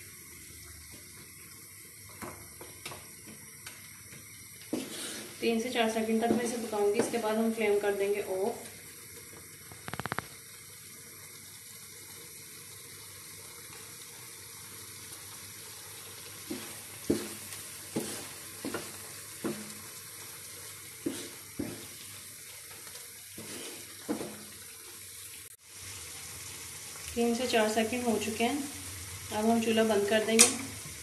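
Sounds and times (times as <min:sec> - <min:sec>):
food sizzling in a frying pan: 0:00.0 - 0:31.0
wooden spatula knocking on pan: 0:06.2 - 0:07.3, 0:16.5 - 0:19.8, 0:21.1 - 0:21.9, 0:24.0 - 0:24.5.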